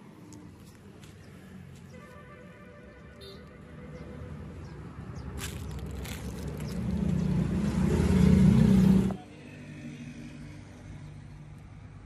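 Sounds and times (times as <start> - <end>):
vehicle engine running: 4.0 - 11.3.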